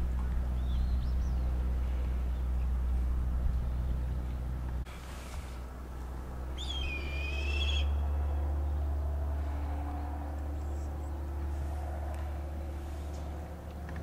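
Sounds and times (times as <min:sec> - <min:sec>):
low rumble: 0:00.0 - 0:14.0
bird whistled call: 0:06.6 - 0:08.0.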